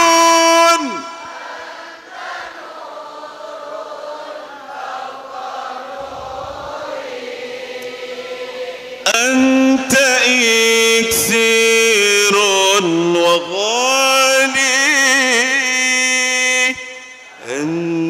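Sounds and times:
amplified man singing: 0:00.0 - 0:01.6, 0:09.0 - 0:18.0
congregation singing softly: 0:00.0 - 0:18.0.

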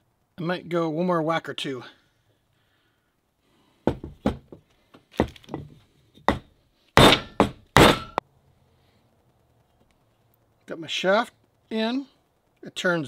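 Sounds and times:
whacks on a wooden block: 0:07.0 - 0:08.2.

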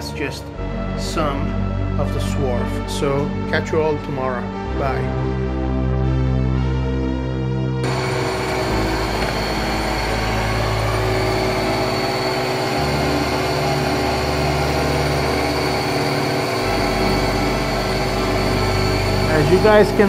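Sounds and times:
low machine hum: 0:07.8 - 0:20.0
milling machine cutting steel: 0:07.8 - 0:20.0.

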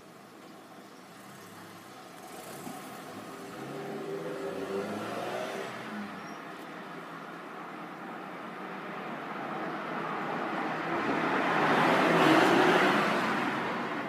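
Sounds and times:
vehicle engine passing by: 0:02.2 - 0:06.1.

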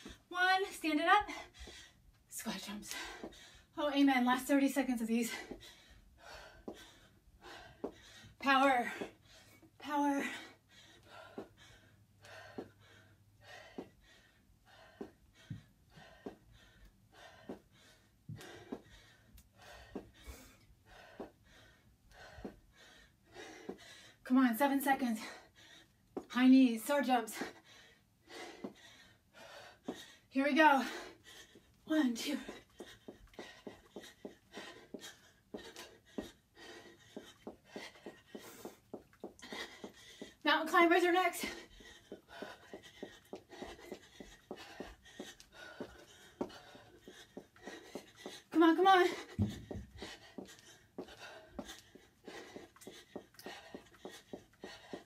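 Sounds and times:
woman breathing hard and gasping: 0:01.2 - 0:02.1, 0:02.9 - 0:03.8, 0:05.2 - 0:24.3, 0:25.0 - 0:26.3, 0:27.3 - 0:40.4, 0:41.4 - 0:55.0
footfalls running in place: 0:41.1 - 0:55.0
sneakers thudding on a rug: 0:49.2 - 0:50.2.

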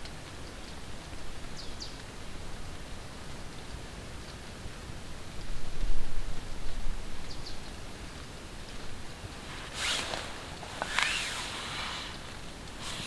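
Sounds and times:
rustling of clothing and grass: 0:07.8 - 0:13.0.

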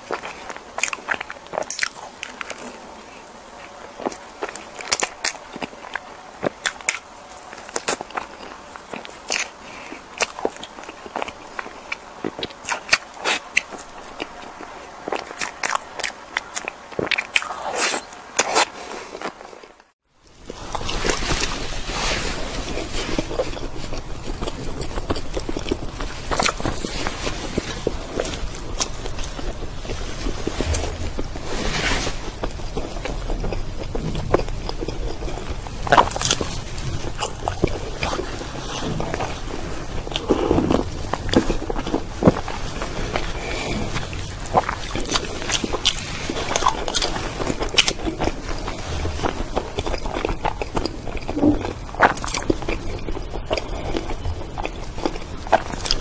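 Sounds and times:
chewing with mouth clicks: 0:00.0 - 0:19.9, 0:20.5 - 0:56.0
mouth clicks and smacks: 0:43.2 - 0:56.0.

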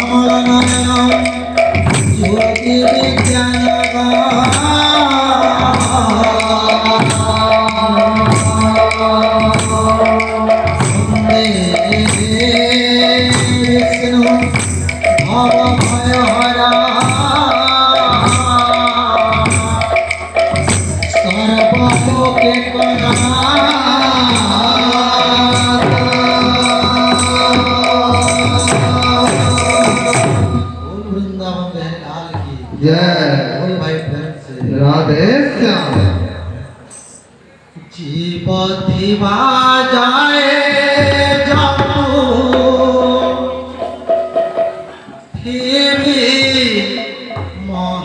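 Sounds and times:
barrel drums beating: 0:00.0 - 0:30.9.

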